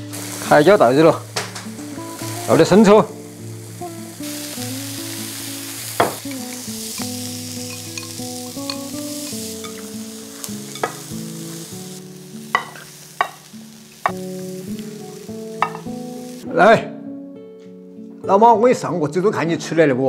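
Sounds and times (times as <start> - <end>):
peppers sizzling in hot oil: 0.0 - 16.4
utensil knocking against pan: 6.0 - 6.2, 12.6 - 13.4, 15.6 - 15.9.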